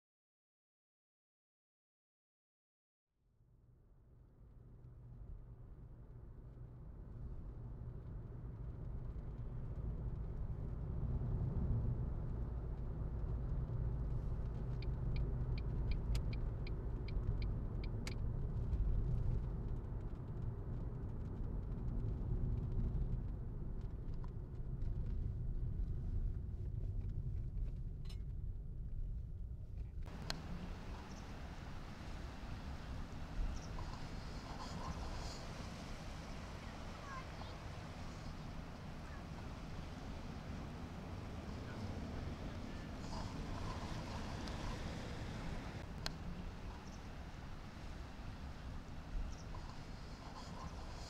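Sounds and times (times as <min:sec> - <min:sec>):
car engine and road rumble: 0:05.7 - 0:51.0
light ticks: 0:14.3 - 0:20.2, 0:29.8 - 0:31.3.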